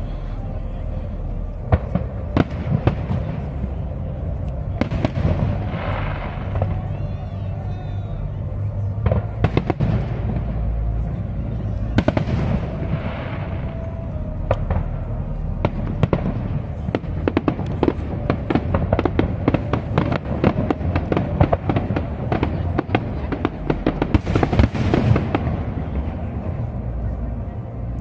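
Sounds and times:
low rumble: 0:00.0 - 0:28.0
fireworks bangs and cracks: 0:01.6 - 0:07.5, 0:08.8 - 0:26.8.

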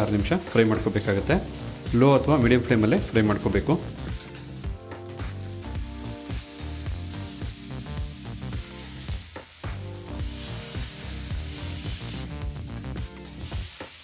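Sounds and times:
background music: 0:00.0 - 0:14.0
fish sizzling in hot oil: 0:00.0 - 0:14.0.

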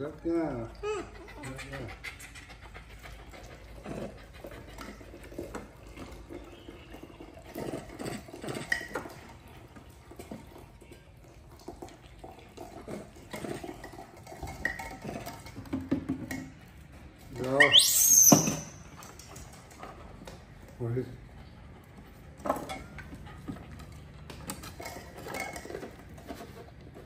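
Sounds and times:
dishes and utensils clinking: 0:03.9 - 0:11.0, 0:11.6 - 0:16.8, 0:22.4 - 0:26.7.

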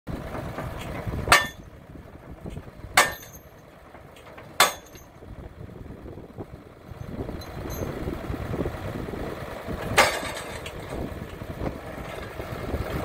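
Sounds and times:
carrier engine running: 0:00.1 - 0:13.0
post driver hammer clanging: 0:00.6 - 0:01.7, 0:03.0 - 0:05.2, 0:07.4 - 0:08.0, 0:09.9 - 0:11.0.

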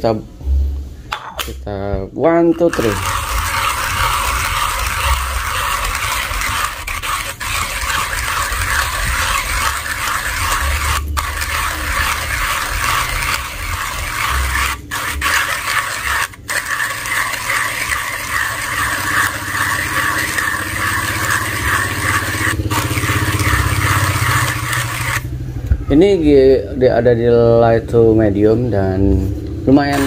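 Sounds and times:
hand coffee grinder grinding beans: 0:02.4 - 0:25.3.

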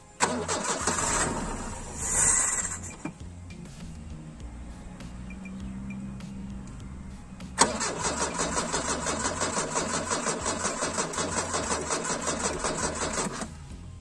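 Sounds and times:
engine cranking: 0:00.2 - 0:03.2, 0:07.5 - 0:13.6.

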